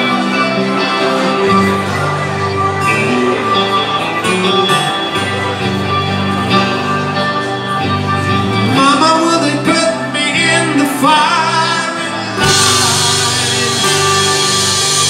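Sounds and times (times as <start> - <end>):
bass guitar: 0.0 - 15.0
electric guitars: 0.0 - 15.0
man singing: 8.5 - 15.0.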